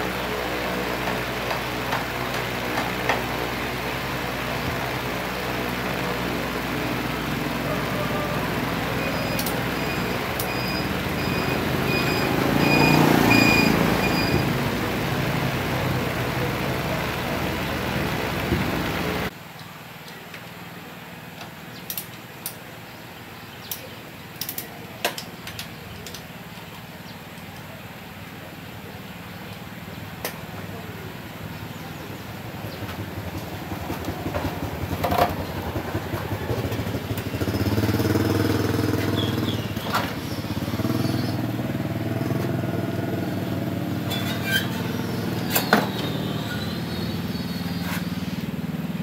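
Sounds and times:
vehicle engine running: 0.0 - 19.4, 22.7 - 49.0
short high beeps: 9.1 - 14.4.

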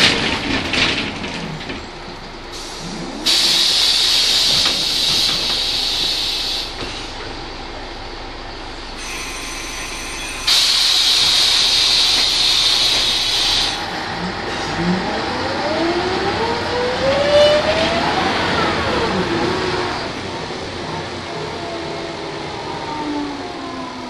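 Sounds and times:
bus engine and gearbox whine: 0.0 - 24.0
compressed air hiss: 2.5 - 7.1, 10.5 - 13.8.

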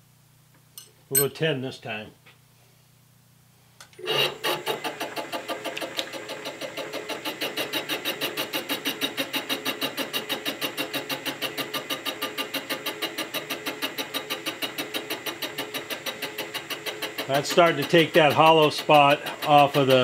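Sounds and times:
milling machine cutting metal: 4.0 - 20.0.

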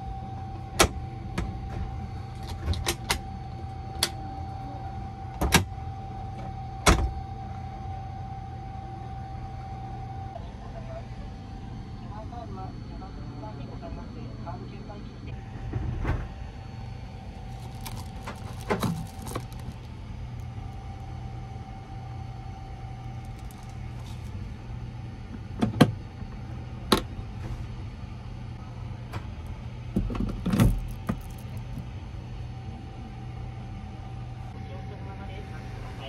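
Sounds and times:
train interior hum: 0.0 - 35.6
faint whine: 0.0 - 36.0
plastic wrapper crinkling: 17.2 - 21.0, 23.1 - 24.4, 30.6 - 31.8
clicks and knocks of handled objects: 17.5 - 19.9, 30.4 - 31.8.

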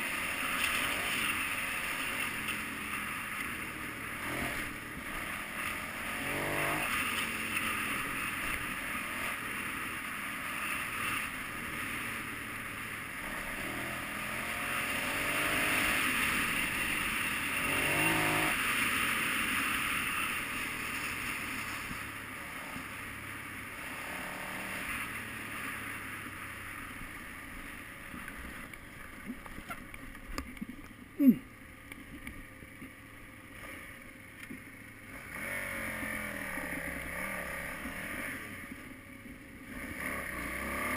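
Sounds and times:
motorcycle engine running: 0.0 - 40.9.

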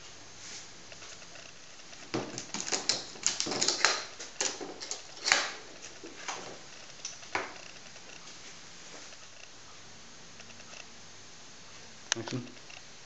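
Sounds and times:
metal case clasps clicking: 2.2 - 6.4.

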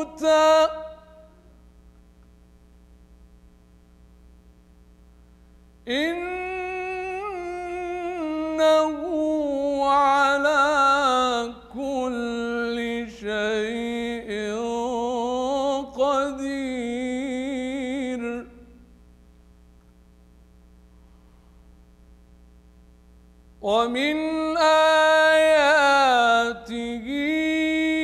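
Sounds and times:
man chanting melodically: 0.0 - 1.4, 5.9 - 18.8, 23.6 - 28.0
low steady hum: 0.0 - 28.0.

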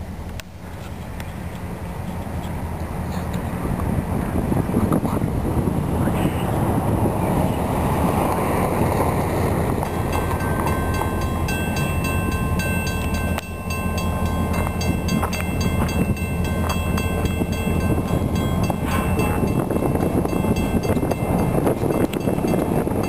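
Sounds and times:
diesel locomotive engine drone: 0.0 - 23.0
thin high tones: 9.9 - 23.0.

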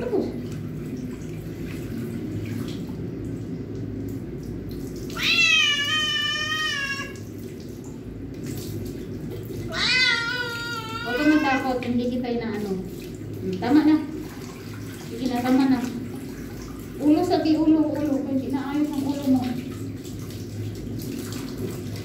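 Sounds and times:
tap water running into sink: 0.0 - 22.0
cat meowing loudly: 5.1 - 7.2, 9.7 - 11.7.

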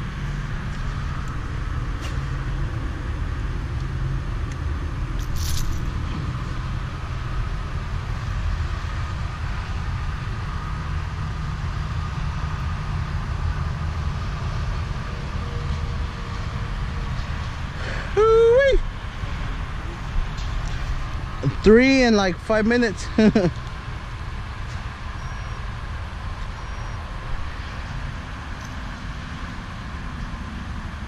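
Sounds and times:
low outdoor rumble: 0.0 - 31.0.

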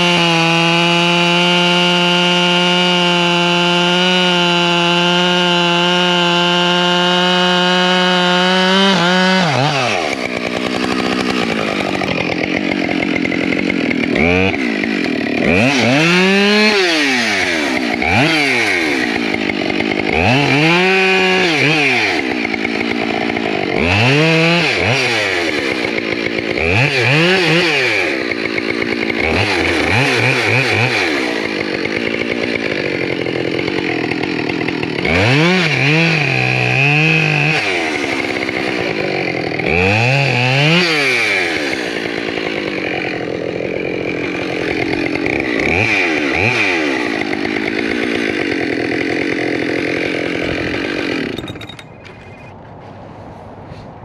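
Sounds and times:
chainsaw revving and idling: 0.0 - 52.6.

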